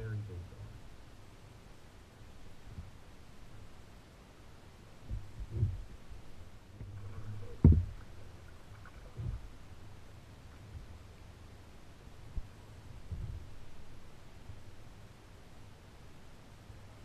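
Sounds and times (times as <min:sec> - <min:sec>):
knocks on plastic kayak hull: 0:07.6 - 0:08.0.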